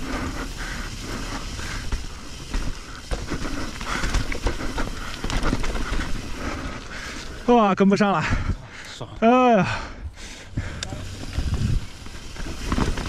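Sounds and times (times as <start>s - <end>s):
mountain bike rattling over rocks: 0.0s - 8.5s, 10.9s - 13.0s
wind rumble on microphone: 10.6s - 12.6s.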